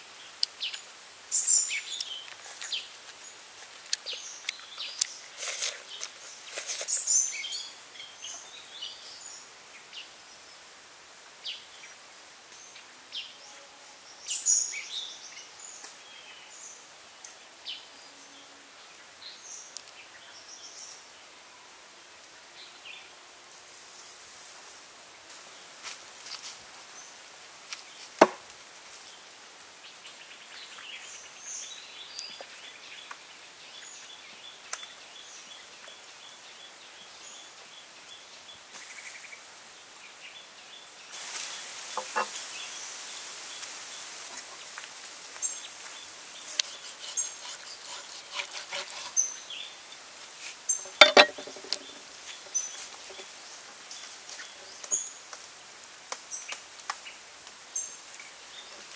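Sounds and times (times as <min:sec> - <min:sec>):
steady faint hiss: 0:00.0 - 0:58.9
small birds chirping: 0:00.1 - 0:10.7, 0:29.0 - 0:58.9.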